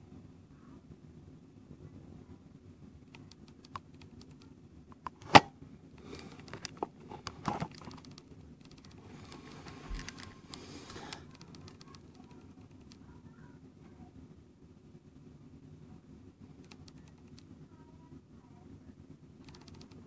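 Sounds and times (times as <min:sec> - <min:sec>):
rustling: 0:06.0 - 0:13.0.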